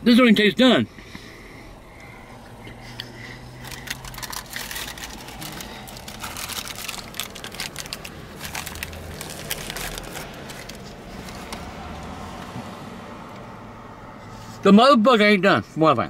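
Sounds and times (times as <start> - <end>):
paper wrapper crinkling: 3.6 - 11.6.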